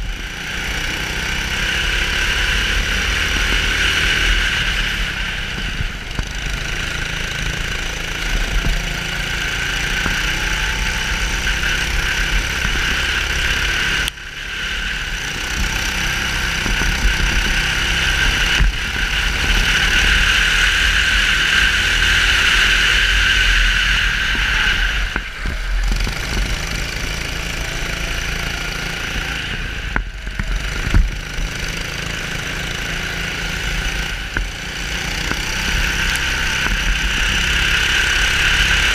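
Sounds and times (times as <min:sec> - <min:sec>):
kart engine racing: 0:00.0 - 0:38.9
vibration rumble on mount: 0:15.0 - 0:23.0, 0:23.6 - 0:38.5.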